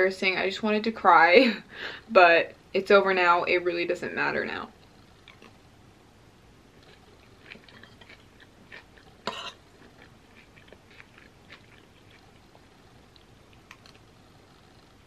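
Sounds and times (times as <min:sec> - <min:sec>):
close-up chewing: 0:04.7 - 0:05.6, 0:06.7 - 0:15.0
wet mouth clicks: 0:05.2 - 0:05.6, 0:06.8 - 0:09.4.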